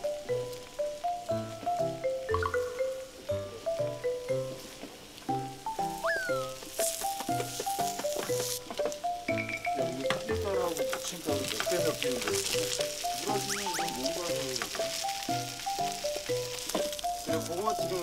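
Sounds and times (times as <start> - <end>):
playful bouncy music: 0.0 - 18.0
potato pancake sizzling in oil: 4.0 - 18.0.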